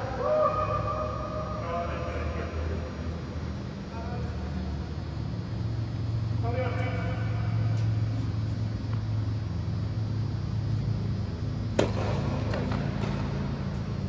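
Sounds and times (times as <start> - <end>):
low machinery hum: 0.0 - 14.0
tennis ball hit: 11.7 - 13.8
ball bouncing: 11.7 - 13.9.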